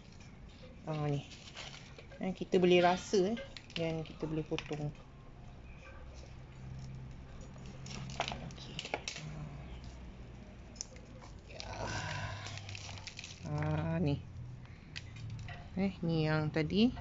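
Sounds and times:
roots crackling and tearing: 10.7 - 15.5.

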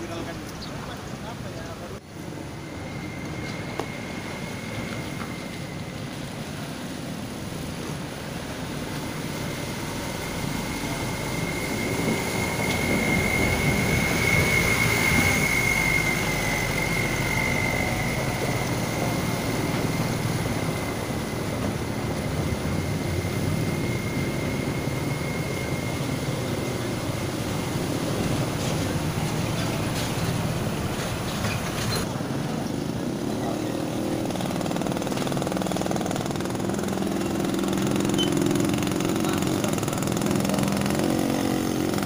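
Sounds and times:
truck engine approaching: 0.0 - 42.0
vehicle engines and tyres rumbling: 0.0 - 42.0
steady high-pitched whine: 1.2 - 34.2.

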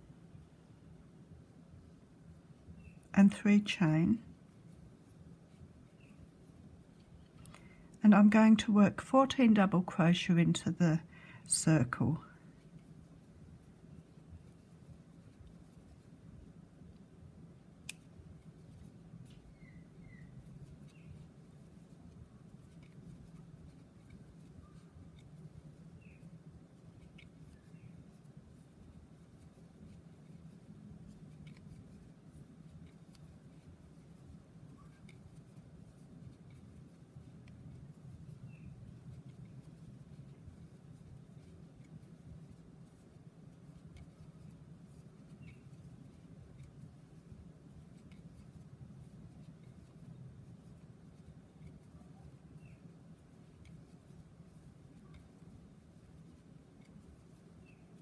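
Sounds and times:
low steady hum: 0.0 - 58.0
crochet hook ticks and squeaks: 2.6 - 4.0, 5.0 - 7.8, 17.8 - 58.0.

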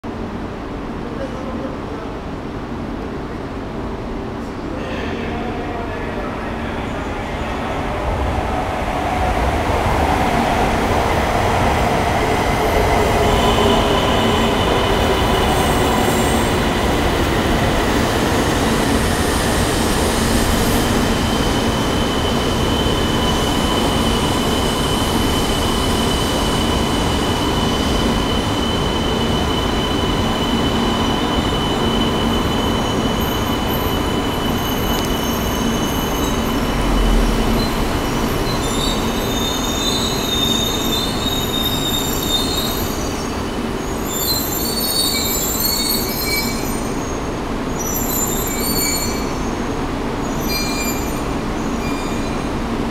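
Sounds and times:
high-pitched brake squeal: 21.1 - 49.6, 50.2 - 52.5.

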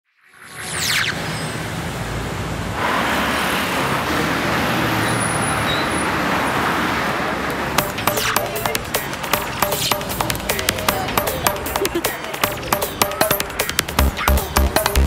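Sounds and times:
city road traffic: 1.2 - 15.0
sharp clicks: 7.8 - 15.0.

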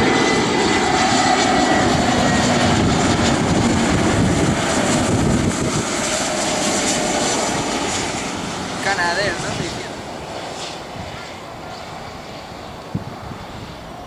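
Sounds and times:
jet engine rumble with whine: 0.0 - 14.0.

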